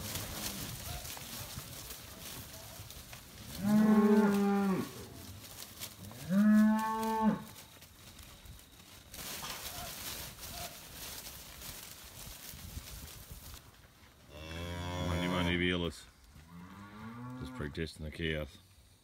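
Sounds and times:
cattle mooing: 3.6s - 5.0s.

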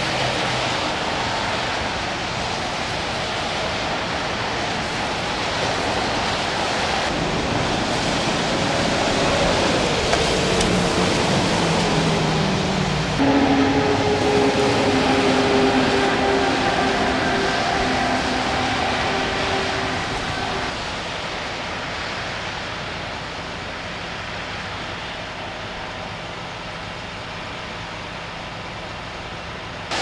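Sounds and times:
passing vehicle engines: 0.0s - 21.0s
loud engine hum: 0.0s - 30.0s
traffic hiss on wet pavement: 0.0s - 30.0s.

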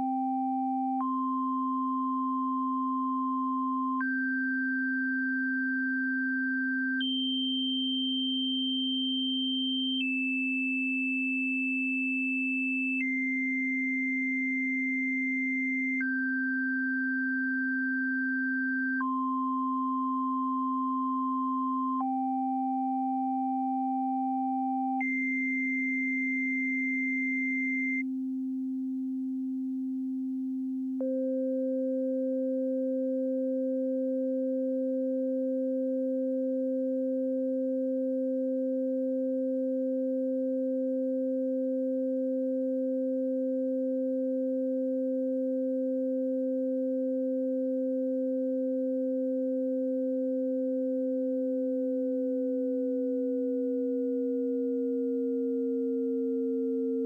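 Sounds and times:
steady low sine tone: 0.0s - 57.0s
changing higher sine tone: 46.3s - 57.0s.

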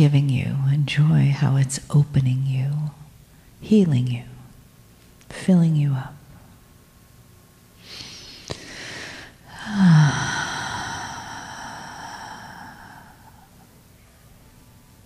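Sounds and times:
soft breathy hiss: 7.8s - 13.9s.

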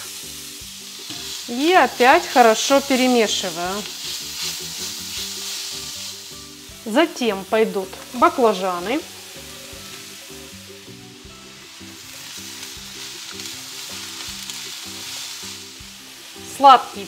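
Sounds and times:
quiet background music: 0.0s - 17.0s
vegetables sizzling in frying pan: 0.0s - 17.0s
spatula stirring: 1.0s - 6.5s.

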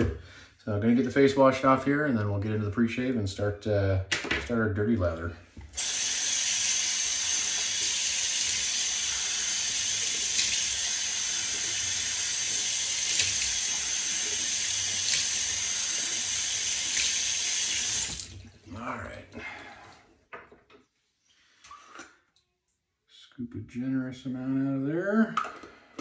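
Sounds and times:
tap running into sink: 9.8s - 18.4s.

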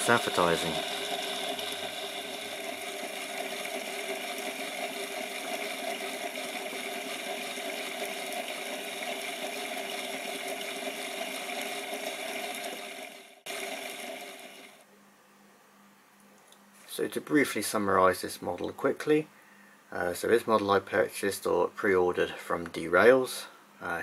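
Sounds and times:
held whining tones: 0.0s - 14.8s
model train motor whirring: 0.0s - 14.8s.

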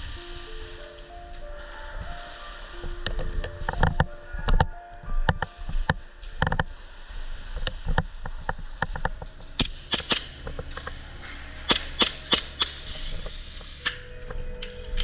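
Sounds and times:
airsoft gun shots: 9.6s - 10.4s, 11.6s - 12.9s.

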